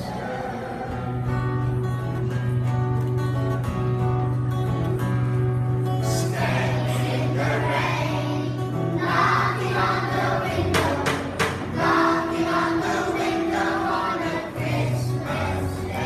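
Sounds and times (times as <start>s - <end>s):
children's choir singing: 0.0s - 1.3s, 6.1s - 16.0s
strummed acoustic guitar: 0.0s - 16.0s.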